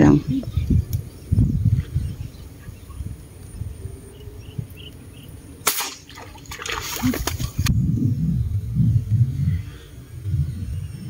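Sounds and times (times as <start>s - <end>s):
airgun shot: 5.6s - 6.2s
fish splashing at surface: 5.7s - 7.7s.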